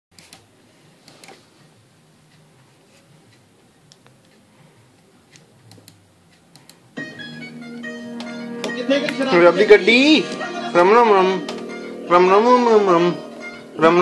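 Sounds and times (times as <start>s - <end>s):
music with sustained notes: 7.0s - 14.0s.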